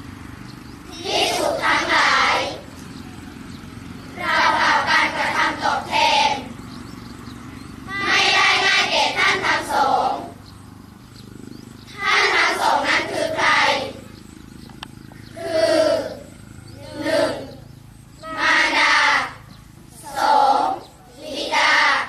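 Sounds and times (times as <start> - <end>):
children chanting together: 0.8 - 2.8, 3.8 - 7.0, 7.6 - 10.5, 11.8 - 14.3, 15.2 - 22.0.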